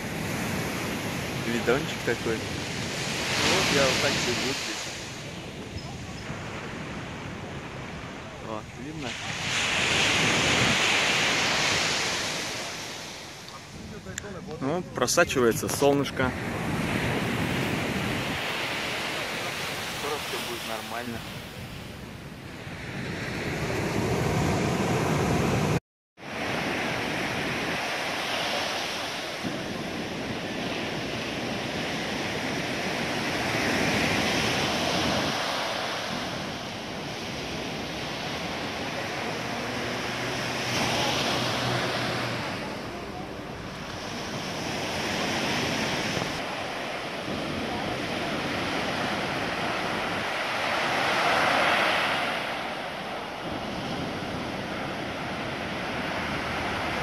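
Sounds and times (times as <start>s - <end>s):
surf breaking on beach: 0.0s - 22.0s, 22.6s - 57.0s.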